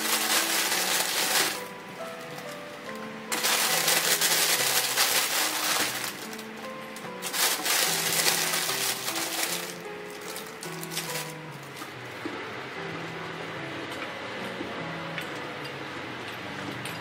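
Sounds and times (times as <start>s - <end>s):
plastic bag crinkling: 0.0s - 11.8s
background music with held notes: 0.0s - 17.0s.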